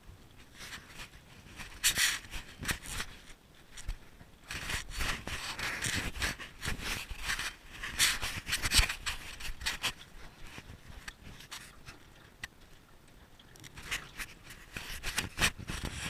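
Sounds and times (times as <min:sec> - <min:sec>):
camera handling scraping and rubbing: 0:00.6 - 0:11.9, 0:13.7 - 0:16.0.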